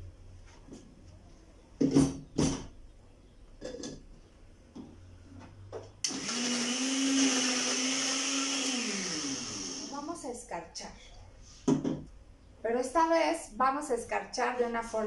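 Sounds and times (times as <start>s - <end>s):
blender crushing ice: 6.0s - 9.9s.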